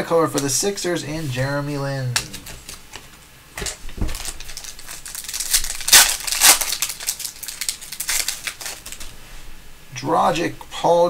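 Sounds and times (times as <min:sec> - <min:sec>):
foil wrapper crinkling: 0:02.0 - 0:09.2.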